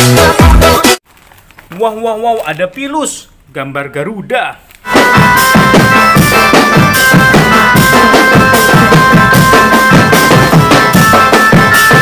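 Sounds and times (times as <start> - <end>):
quick drum beats: 4.9 - 12.0.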